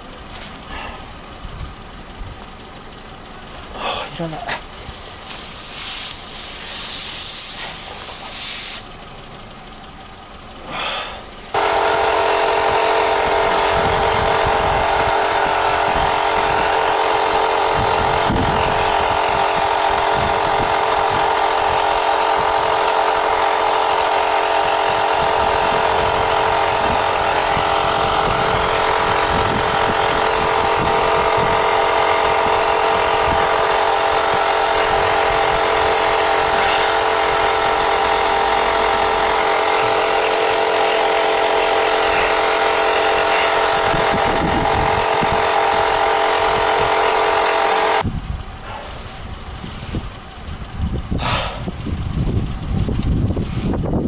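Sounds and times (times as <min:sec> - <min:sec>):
electric air compressor running: 0:00.0 - 0:54.0
hiss of escaping air: 0:05.2 - 0:08.9, 0:53.4 - 0:53.8.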